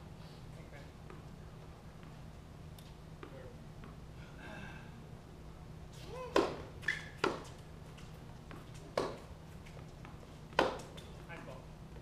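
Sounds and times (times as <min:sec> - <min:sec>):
tennis ball pops: 0:06.3 - 0:07.5, 0:08.9 - 0:09.2, 0:10.6 - 0:11.0.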